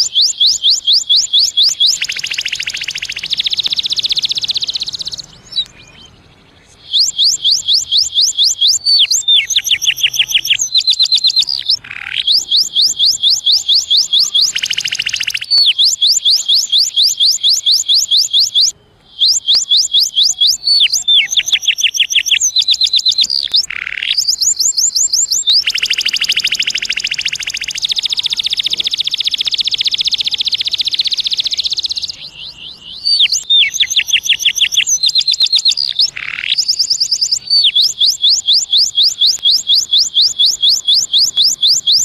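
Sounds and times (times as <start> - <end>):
canary singing: 0.0 - 42.0.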